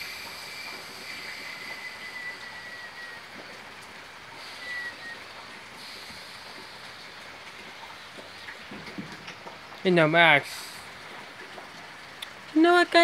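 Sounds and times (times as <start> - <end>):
thin high whistling tone: 0.0 - 3.7, 4.4 - 6.3
outdoor background hiss: 0.0 - 13.0.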